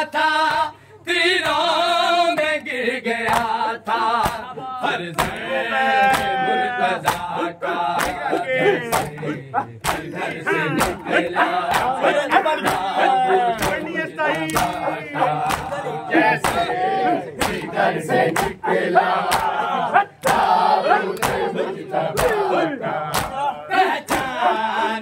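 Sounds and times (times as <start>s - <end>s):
crowd chanting and shouting: 0.0s - 25.0s
hands slapping chests: 3.3s - 3.6s, 4.2s - 18.6s, 19.2s - 20.5s, 21.1s - 21.5s, 22.1s - 23.4s, 24.1s - 24.4s.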